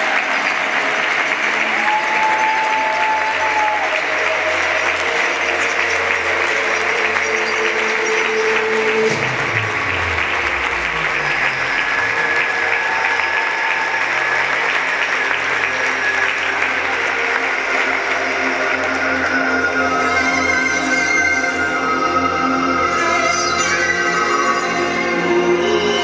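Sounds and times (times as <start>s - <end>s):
audience applauding: 0.0s - 21.7s
music with low bass line: 4.9s - 13.0s.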